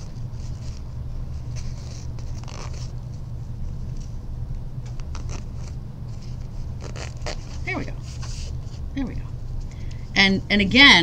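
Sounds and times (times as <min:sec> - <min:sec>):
steady low hum: 0:00.0 - 0:11.0
rustles scrapes and zipper clicks: 0:01.5 - 0:03.0, 0:04.9 - 0:08.8.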